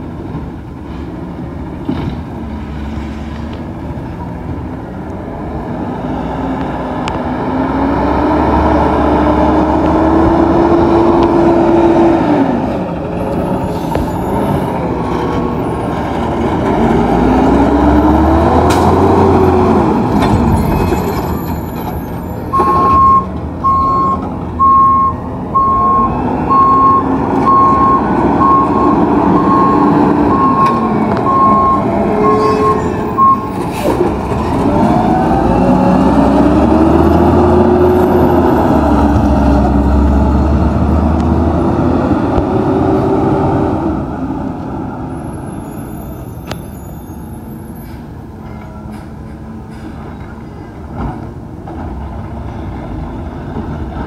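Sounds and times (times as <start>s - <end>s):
reversing alarm beeps: 22.5s - 33.6s
garbage truck engine revving: 25.6s - 43.9s.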